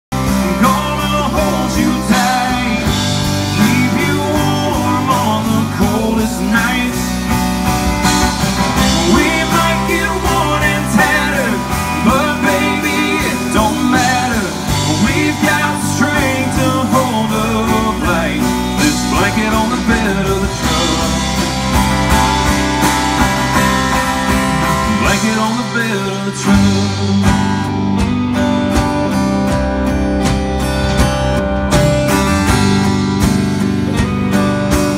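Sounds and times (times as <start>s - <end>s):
bass guitar: 0.0s - 34.9s
drums: 0.0s - 34.9s
electric guitars: 0.1s - 34.9s
man singing: 0.2s - 7.4s, 8.7s - 22.0s, 24.6s - 27.7s
strummed acoustic guitar: 0.2s - 34.9s.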